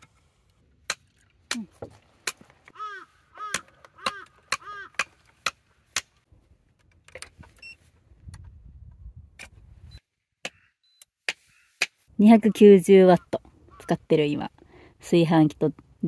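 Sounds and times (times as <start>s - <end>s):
bird calling: 2.7s - 5.2s, 13.1s - 14.1s.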